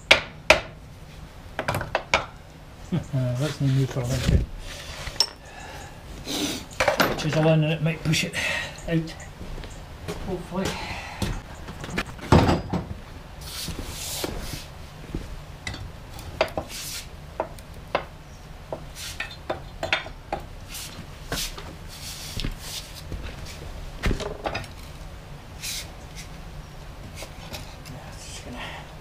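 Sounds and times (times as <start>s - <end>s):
metal clinks and knocks: 11.9s - 12.9s.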